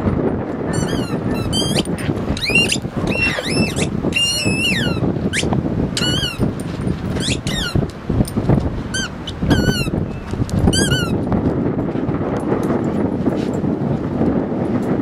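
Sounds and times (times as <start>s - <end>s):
squeaky rubber ball squeaking: 0.7s - 6.5s, 7.1s - 7.8s, 8.9s - 10.0s, 10.7s - 11.2s.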